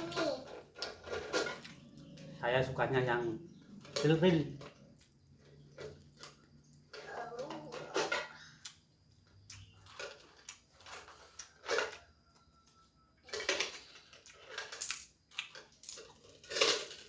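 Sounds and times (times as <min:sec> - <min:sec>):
coins rattling in coin bank: 0:13.3 - 0:17.0.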